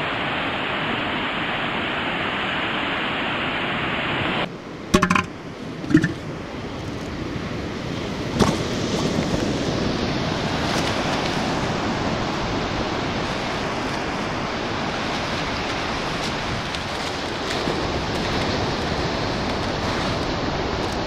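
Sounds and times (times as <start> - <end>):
wind: 0.0 - 21.0
surf breaking on beach: 8.0 - 21.0.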